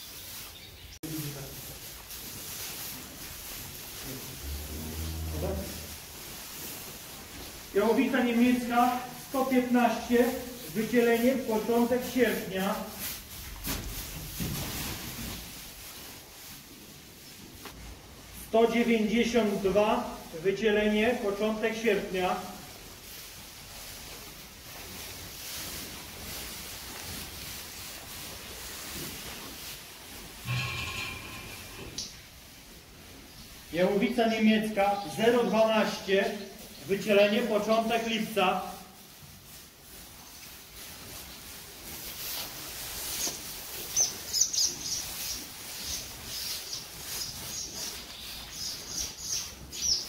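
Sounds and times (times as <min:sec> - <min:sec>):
birds chirping: 0:00.0 - 0:01.0, 0:44.0 - 0:50.0
steady background hiss: 0:00.0 - 0:50.0.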